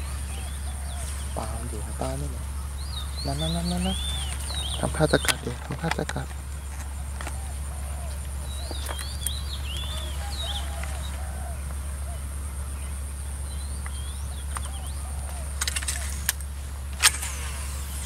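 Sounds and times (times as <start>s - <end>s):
small birds chirping: 0.0s - 18.0s
steady low hum: 0.0s - 18.0s
sharp clicks: 3.8s - 7.4s, 13.8s - 17.7s.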